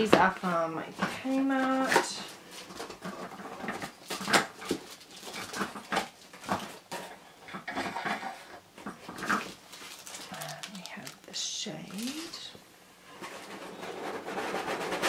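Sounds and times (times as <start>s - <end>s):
cardboard packaging rustling: 1.0s - 7.2s, 7.8s - 12.6s.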